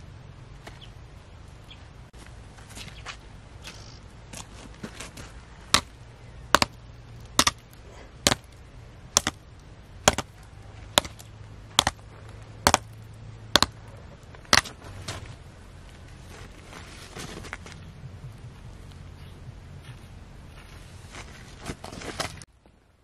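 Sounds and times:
sharp chopping blows: 5.7 - 9.4, 10.0 - 13.8, 14.4 - 15.3.

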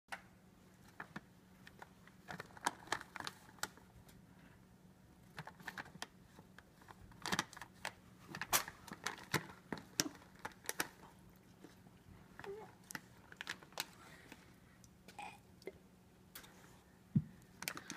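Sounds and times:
cat crunching treats: 0.9 - 3.8, 5.3 - 14.4.

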